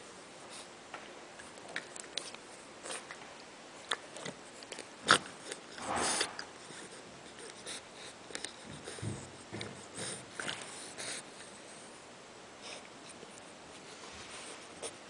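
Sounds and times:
puppy snuffling: 0:03.9 - 0:11.9.

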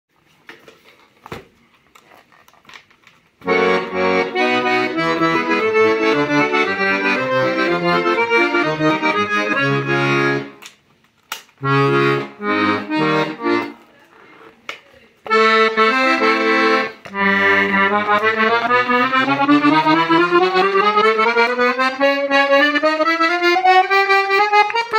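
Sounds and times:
accordion chords and bass: 0:03.4 - 0:10.6, 0:11.6 - 0:14.5, 0:15.2 - 0:24.9.

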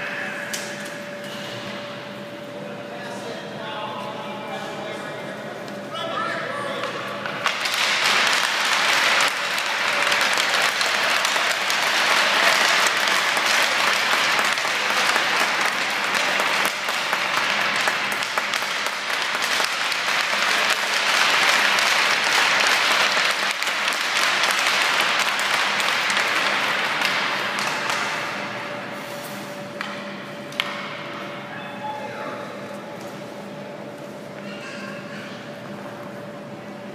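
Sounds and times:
spectators applauding: 0:07.4 - 0:28.2.

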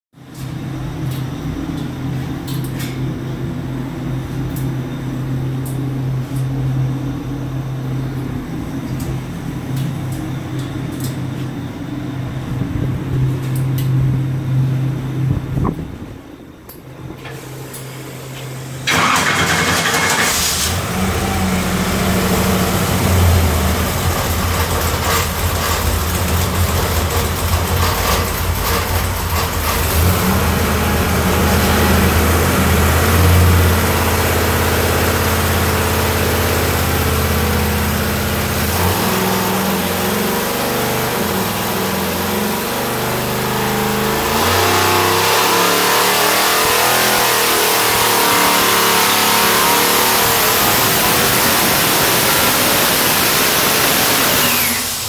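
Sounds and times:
car engine idling: 0:17.9 - 0:44.5.

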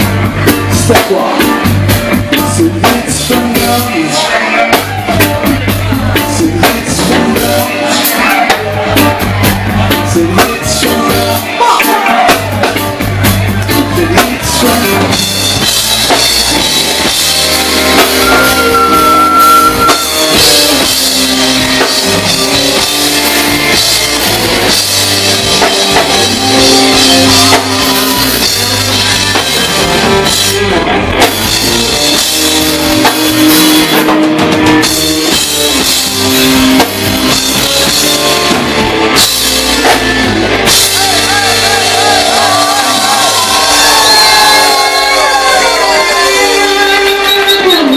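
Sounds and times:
bass guitar: 0:00.0 - 0:47.9
drum kit: 0:00.0 - 0:47.9
live reggae band playing: 0:00.0 - 0:47.9
person singing: 0:02.3 - 0:09.3, 0:13.6 - 0:15.4.

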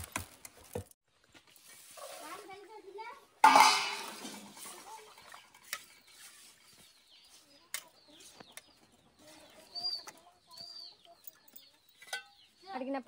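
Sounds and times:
chickens clucking: 0:05.0 - 0:12.6.

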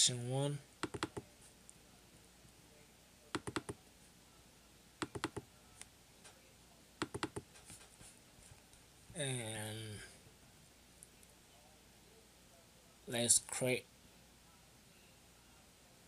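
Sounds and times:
computer mouse clicking: 0:00.8 - 0:01.2, 0:03.4 - 0:03.8, 0:05.0 - 0:05.4, 0:07.0 - 0:07.8.

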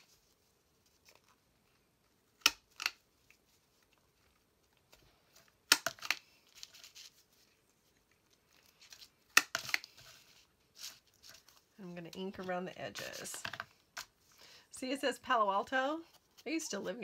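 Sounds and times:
paper rustling: 0:03.1 - 0:14.3.

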